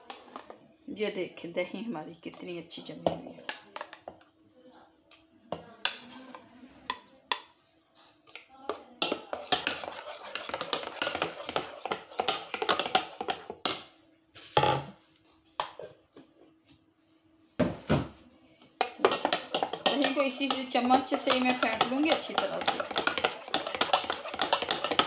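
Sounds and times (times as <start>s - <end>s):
plastic spoon beating yogurt in bowl: 8.3s - 13.9s, 18.8s - 25.0s.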